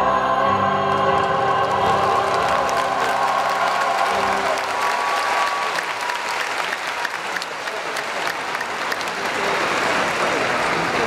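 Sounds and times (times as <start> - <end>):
choir held chord: 0.0 - 5.8
crowd applauding: 1.0 - 11.0.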